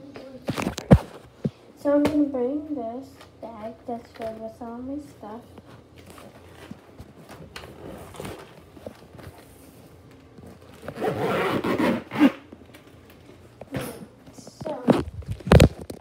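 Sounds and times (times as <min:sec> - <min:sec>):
bag rubbing and handling: 0:07.7 - 0:09.3, 0:10.7 - 0:12.4
zipper rasping: 0:10.7 - 0:12.4.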